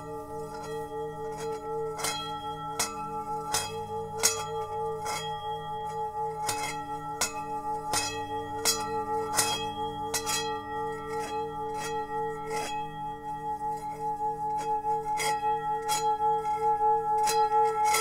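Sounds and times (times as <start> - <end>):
singing bowl struck with mallet: 0.0 - 18.0
wavering metallic hum: 0.0 - 18.0.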